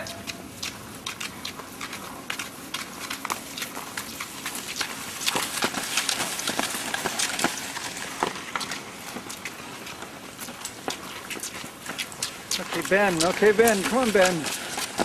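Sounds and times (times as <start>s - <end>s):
ski poles clicking and crunching: 0.0s - 15.0s
skis gliding hiss: 4.1s - 15.0s.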